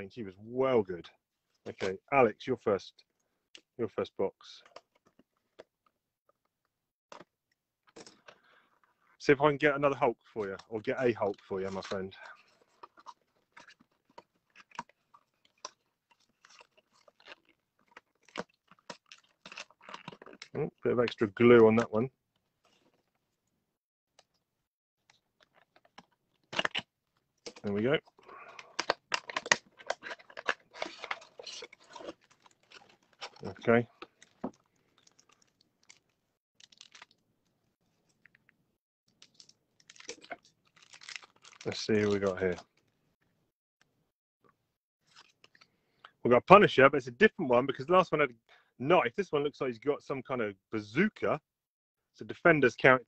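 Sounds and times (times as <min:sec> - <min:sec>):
plastic blister pack crinkling: 0:11.2 - 0:20.6, 0:25.2 - 0:37.2, 0:39.2 - 0:42.6.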